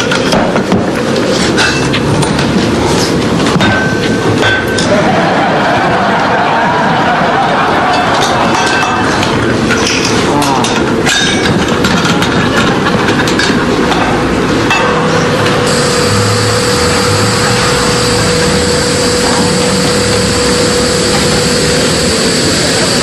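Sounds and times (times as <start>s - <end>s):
gas hissing from a cylinder: 15.6s - 23.0s
steady whistling tone: 15.7s - 23.0s.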